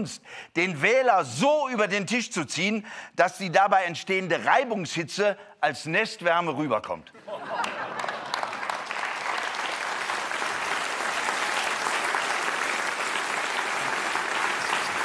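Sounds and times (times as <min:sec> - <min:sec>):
audience applauding: 0:07.5 - 0:15.0.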